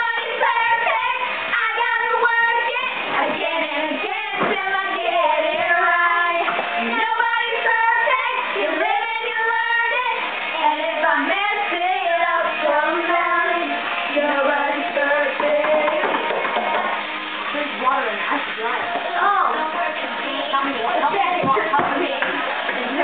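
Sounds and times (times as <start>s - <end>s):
backing music: 0.0s - 23.0s
girls singing pop song: 0.0s - 23.0s.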